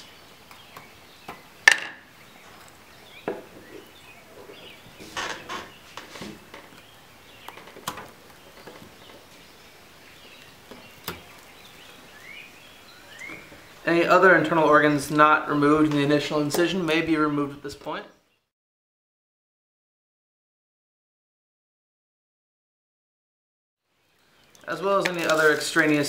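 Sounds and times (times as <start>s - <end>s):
scraping rustle: 3.4s - 9.6s, 24.7s - 26.0s.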